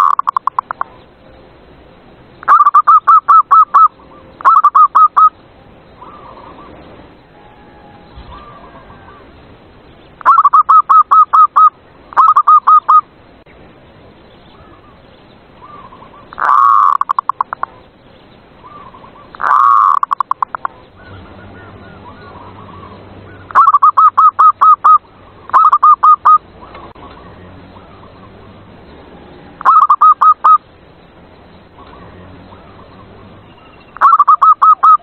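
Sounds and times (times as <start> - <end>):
doves cooing: 6.0 - 9.4, 15.6 - 17.9, 18.6 - 28.6, 29.2 - 30.6, 31.7 - 35.0.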